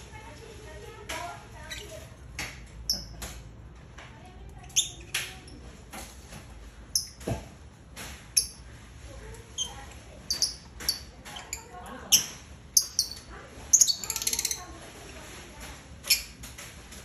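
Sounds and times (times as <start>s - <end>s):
lovebirds squeaky chirps: 1.6s - 2.1s, 2.8s - 3.3s, 4.6s - 5.6s, 6.9s - 7.2s, 8.3s - 8.7s, 9.5s - 14.8s, 16.0s - 16.4s.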